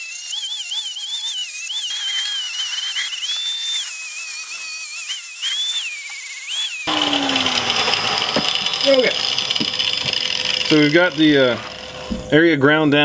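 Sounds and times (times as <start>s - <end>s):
electric grinder whining on metal: 0.0s - 12.5s.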